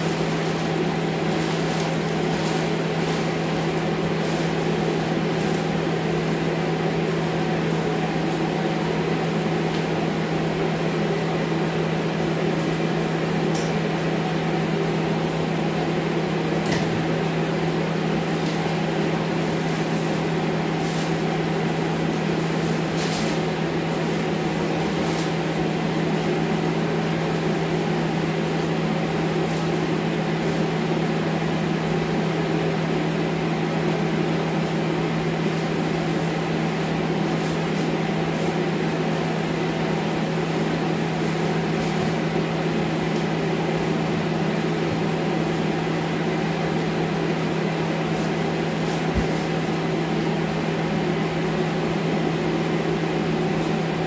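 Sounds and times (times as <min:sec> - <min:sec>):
plastic sheeting crinkling: 0:00.0 - 0:09.2
fan humming: 0:00.0 - 0:54.0.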